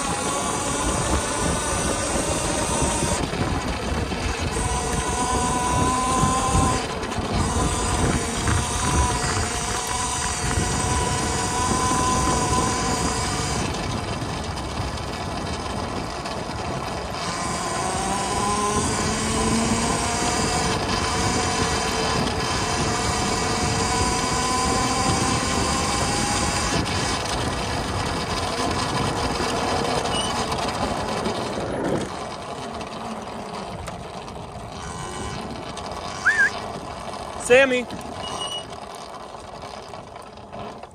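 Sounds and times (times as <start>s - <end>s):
electric motor whine: 0.0s - 40.9s
tyres rumbling on dirt: 0.0s - 40.9s
wind: 0.0s - 40.9s.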